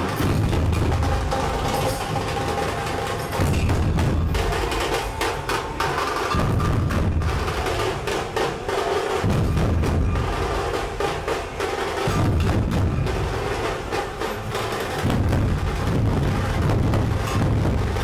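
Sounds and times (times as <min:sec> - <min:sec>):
fast dense drums: 0:00.0 - 0:18.0.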